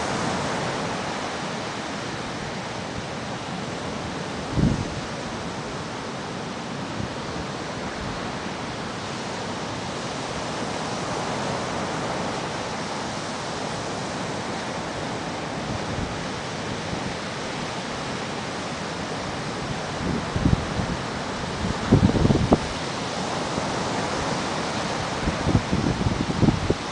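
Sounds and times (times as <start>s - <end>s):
ocean surf on beach: 0.0s - 26.9s
wind bumps on microphone: 4.4s - 5.1s, 20.0s - 22.8s, 25.1s - 26.9s.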